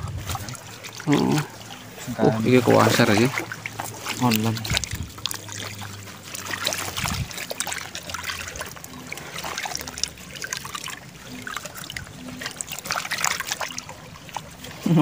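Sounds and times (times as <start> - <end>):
pond water trickling: 0.0 - 15.0
fish flapping in a net: 2.8 - 15.0.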